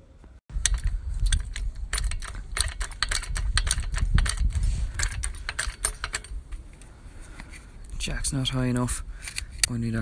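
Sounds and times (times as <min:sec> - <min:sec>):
metallic clicks and rattles: 0:00.5 - 0:07.5
steady low rumble: 0:00.5 - 0:10.0.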